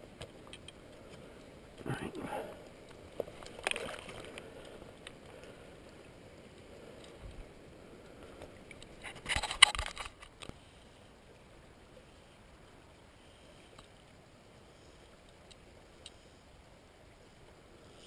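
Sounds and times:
sharp clicks and scrapes: 8.7 - 10.6.

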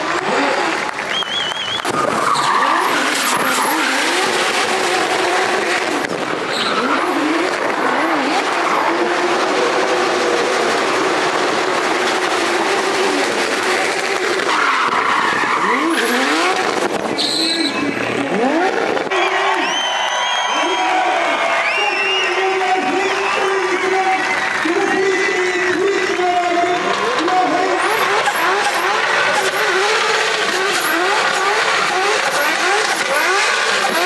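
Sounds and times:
car engine revving hard: 0.0 - 19.6, 22.5 - 34.0
tyres screeching: 1.2 - 18.0, 27.8 - 34.0.

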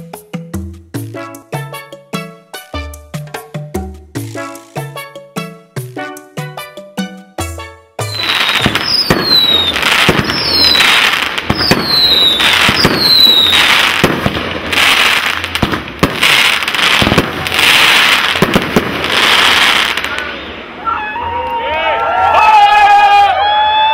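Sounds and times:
high falling firework whistles: 8.0 - 14.2
firework crackle: 8.0 - 21.2
firework shells bursting: 8.1 - 20.3.

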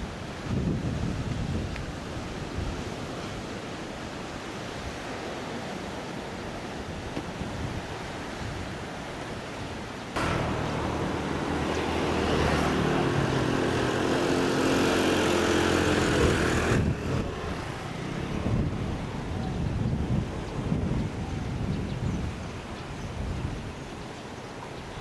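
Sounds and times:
wind: 0.0 - 25.0
engine drone with low hum: 10.2 - 19.0.

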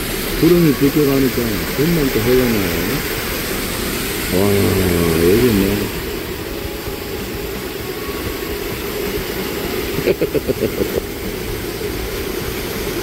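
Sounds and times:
stream rushing over boulders: 0.0 - 13.0
person's voice pulsing: 4.3 - 6.0.

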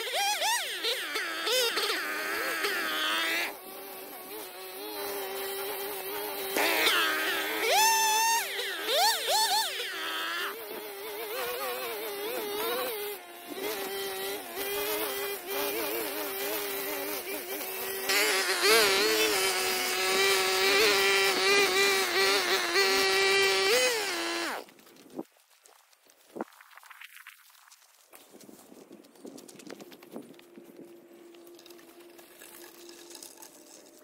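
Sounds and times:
brush cutter cutting grass: 0.0 - 25.3.

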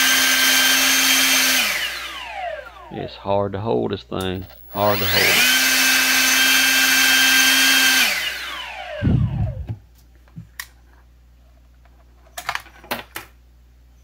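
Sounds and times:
leaf blower fan whining: 0.0 - 3.1, 4.2 - 9.9.

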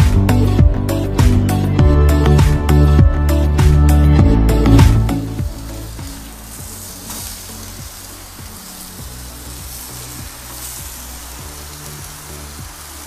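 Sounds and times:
background music: 0.0 - 13.0
food sizzling in frying pan: 5.0 - 13.0.

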